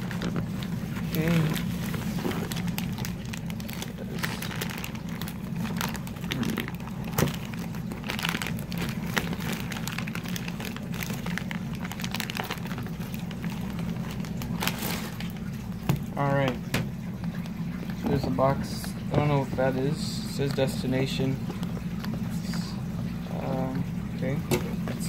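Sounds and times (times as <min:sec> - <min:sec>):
plastic mailer crinkling: 0:00.0 - 0:16.0
steady low hum: 0:00.0 - 0:25.0.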